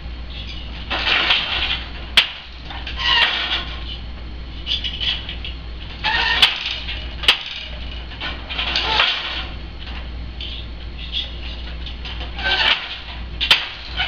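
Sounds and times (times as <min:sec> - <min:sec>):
wooden loom creaking: 0:06.0 - 0:09.5, 0:10.4 - 0:14.0.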